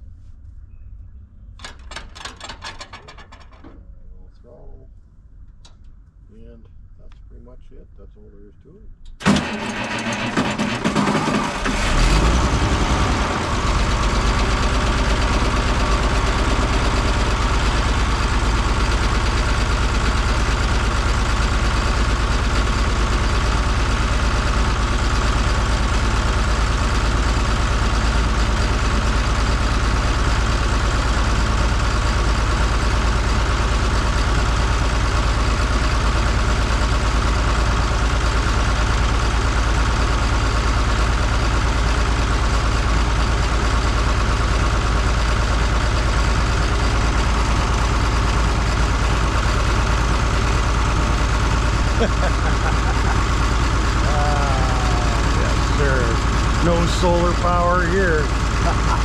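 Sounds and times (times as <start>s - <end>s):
tractor diesel engine idling: 9.2s - 59.0s.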